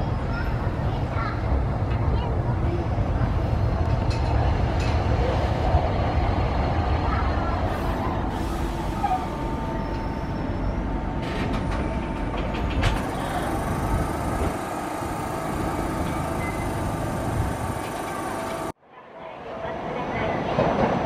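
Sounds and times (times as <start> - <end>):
tram rumbling: 0.0 - 18.8, 19.4 - 21.0.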